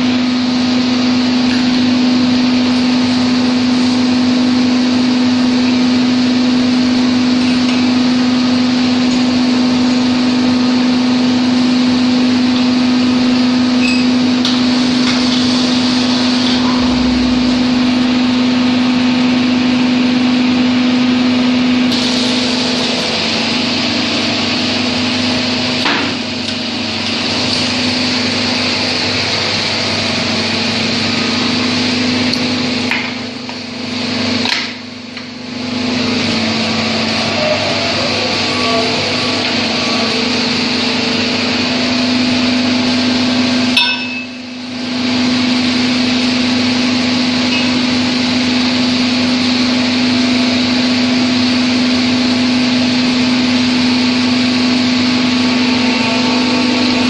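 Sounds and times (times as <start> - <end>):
drilling rig humming: 0.0 - 21.0, 21.8 - 57.0
low thud: 16.6 - 18.8.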